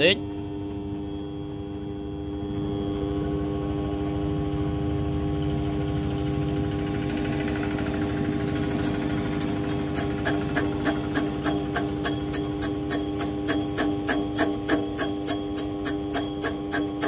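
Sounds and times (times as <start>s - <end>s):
lathe motor hum: 4.9s - 17.0s
metal cutting noise: 6.8s - 17.0s
sharp ticks: 7.2s - 17.0s.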